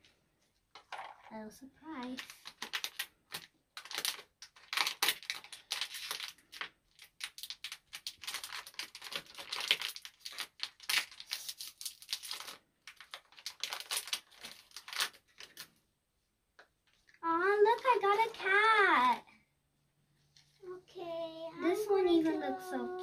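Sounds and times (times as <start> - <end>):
plastic packets crinkling and tearing: 2.0 - 15.8.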